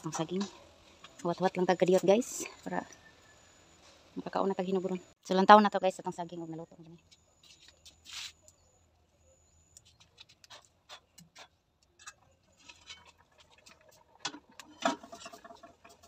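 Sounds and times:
wood fire crackling: 9.6 - 16.0.

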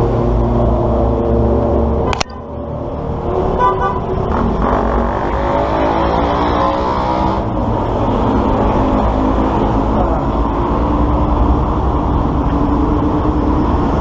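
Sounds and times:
vehicle engines running: 0.0 - 14.0
car horn toot: 3.6 - 4.1.

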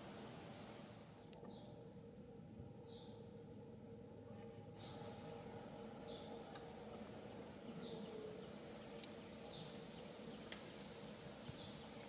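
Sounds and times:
low hum: 0.0 - 12.0
bird chirping: 1.2 - 1.8, 2.8 - 3.4, 4.7 - 12.0.

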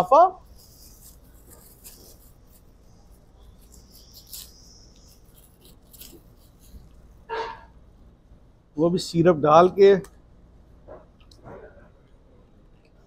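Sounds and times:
plastic wrapper crinkling: 0.0 - 7.0.

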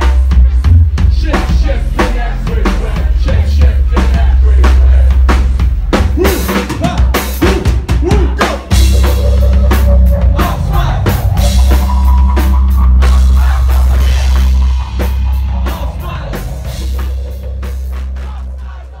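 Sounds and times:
deep bass line: 0.0 - 19.0
live rock music: 0.0 - 19.0
drum kit hit hard: 5.2 - 18.7.

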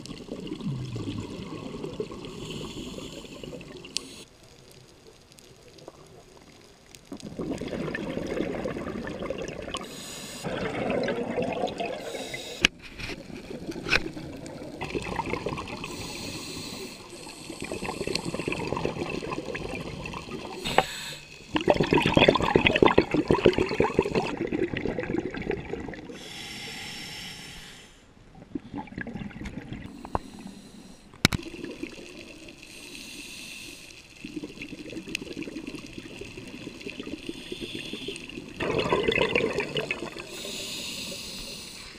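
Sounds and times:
gurgling exhaled bubbles: 0.0 - 4.0, 5.7 - 12.4, 13.2 - 20.8, 21.4 - 26.2, 28.4 - 29.9, 31.4 - 32.6, 34.1 - 41.2
hissing regulator inhalations: 2.3 - 4.3, 9.8 - 10.5, 12.0 - 12.8, 15.8 - 18.7, 20.4 - 21.6, 26.1 - 28.0, 29.9 - 31.2, 32.6 - 34.3, 37.0 - 38.6, 40.2 - 41.9.

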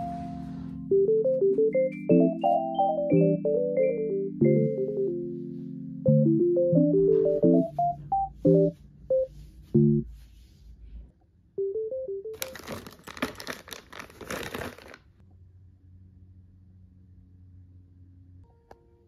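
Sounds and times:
piano-like backing tune: 0.0 - 10.4, 11.6 - 13.2
rustling fabric and plastic spools: 12.4 - 15.2.

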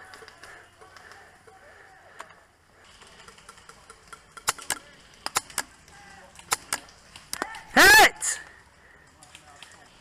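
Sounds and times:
person shouting: 7.4 - 8.5.

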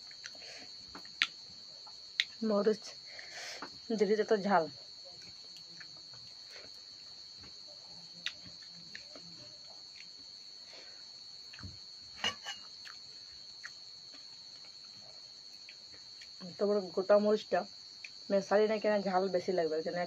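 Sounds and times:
crickets trilling: 0.0 - 20.0
person eating from steel bowl: 12.2 - 13.0.

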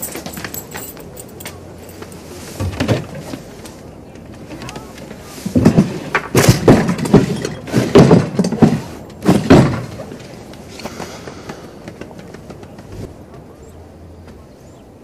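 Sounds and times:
cupboard doors and drawers banging: 5.5 - 10.2.

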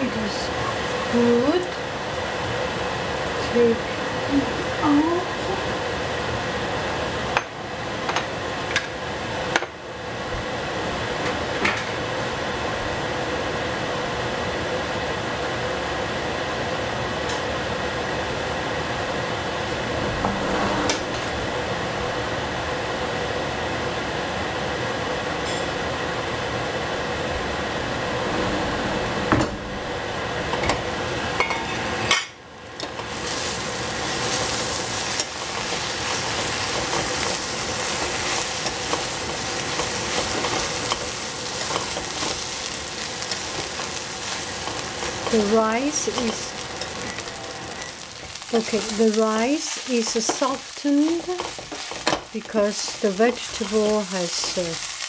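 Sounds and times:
rice sizzling in a pan: 0.0 - 19.7, 30.1 - 55.0
spatula scraping a pan: 33.0 - 55.0.

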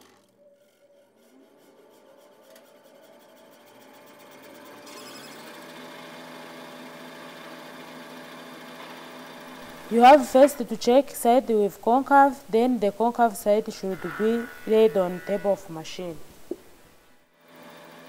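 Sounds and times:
planer cutter block humming: 0.0 - 10.6, 17.4 - 18.0.

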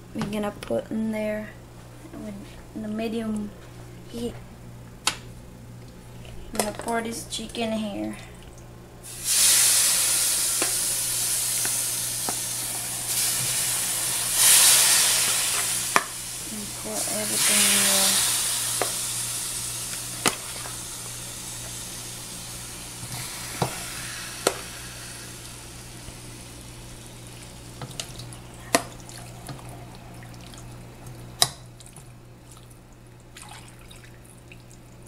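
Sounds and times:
chicken sizzling in a wok: 9.0 - 27.8.

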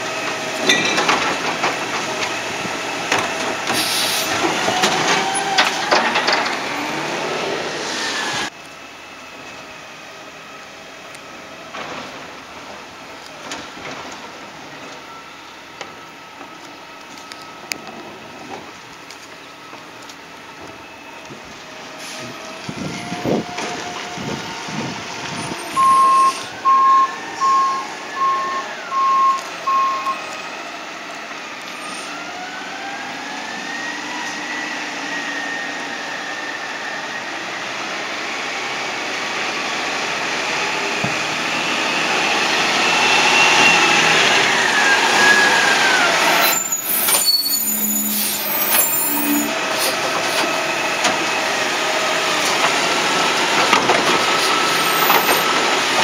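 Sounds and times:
reversing alarm beeps: 25.6 - 30.3.

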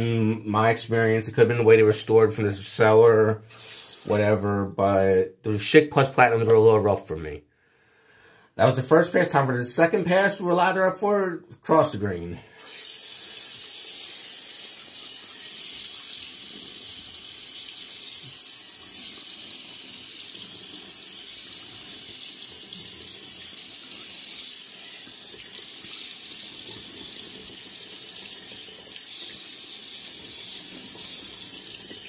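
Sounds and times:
tap running into basin: 13.4 - 32.0.

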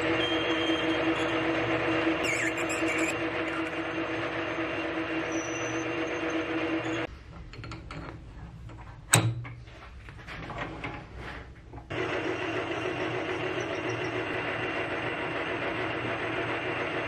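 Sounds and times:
drill boring into metal: 0.0 - 7.1, 11.9 - 17.0
metal lathe running: 0.0 - 7.1, 11.9 - 17.0.

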